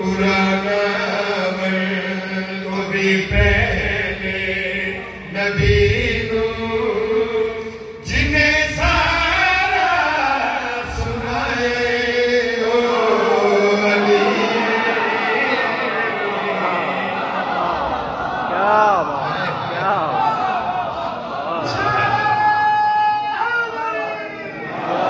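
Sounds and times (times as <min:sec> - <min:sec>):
man chanting devotional poem: 0:00.0 - 0:15.6.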